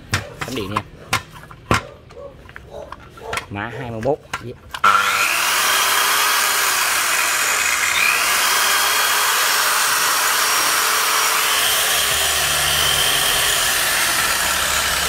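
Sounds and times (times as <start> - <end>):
circular saw running: 4.8 - 15.0.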